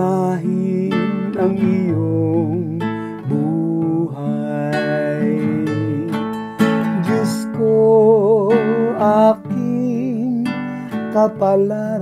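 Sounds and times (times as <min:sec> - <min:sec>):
acoustic guitar strumming: 0:00.0 - 0:12.0
person singing: 0:00.0 - 0:12.0.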